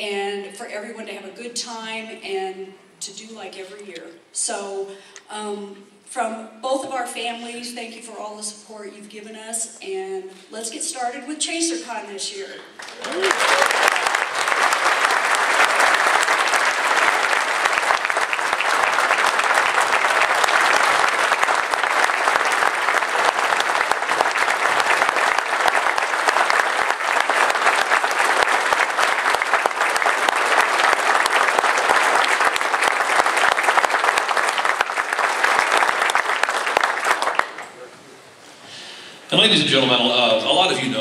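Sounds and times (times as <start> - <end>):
audience applauding: 12.8 - 37.9.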